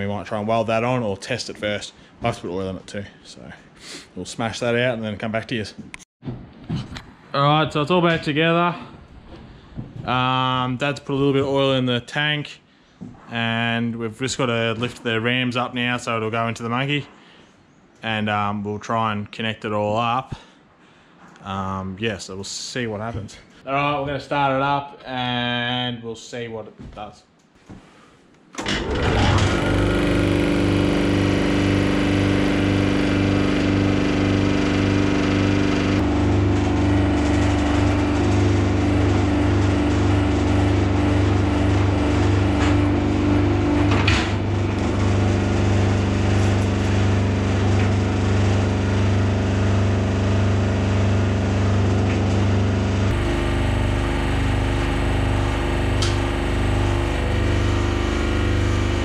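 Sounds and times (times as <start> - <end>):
hydraulic pump pulsing: 28.6 - 59.0.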